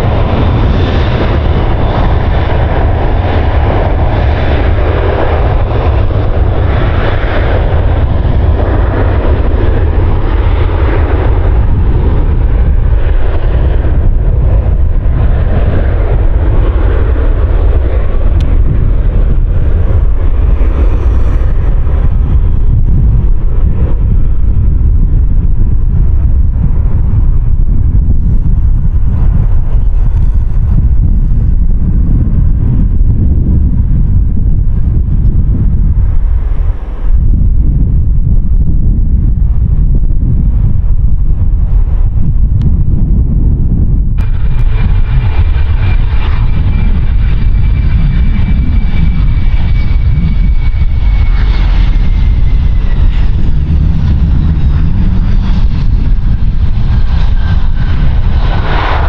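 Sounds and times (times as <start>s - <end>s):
jet engines running: 0.0s - 59.0s
wind buffeting microphone: 0.0s - 59.0s.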